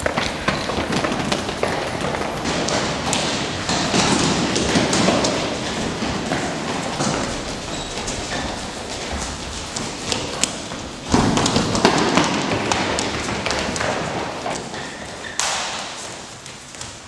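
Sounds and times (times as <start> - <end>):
scuffing and stamping: 0.0 - 17.0
shoes tapping on hard floor: 0.0 - 17.0.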